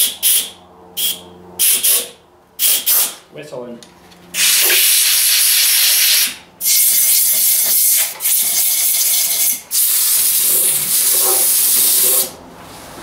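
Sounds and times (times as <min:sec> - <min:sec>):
compressed air blow gun hissing: 0:04.4 - 0:07.4, 0:08.3 - 0:12.0.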